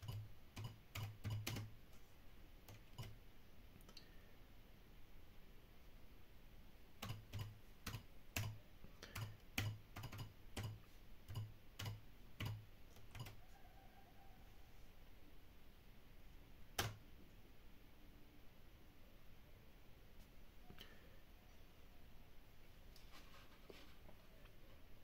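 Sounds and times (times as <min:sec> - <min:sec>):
computer keyboard keystrokes: 0:00.0 - 0:01.7, 0:02.7 - 0:03.2, 0:07.0 - 0:13.4, 0:16.8 - 0:17.0.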